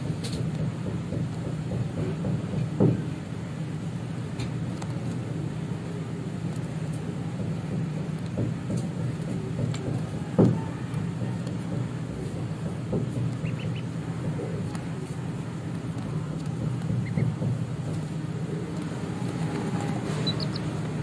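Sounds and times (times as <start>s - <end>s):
steady low hum: 0.0s - 21.0s
chicks and ducklings peeping: 9.1s - 21.0s.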